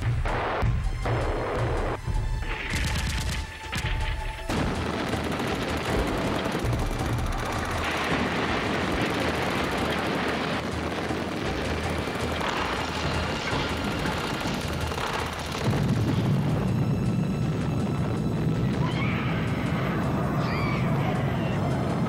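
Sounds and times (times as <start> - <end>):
music: 0.0 - 22.0
explosions: 2.6 - 20.1
rapid gunfire: 2.7 - 16.6.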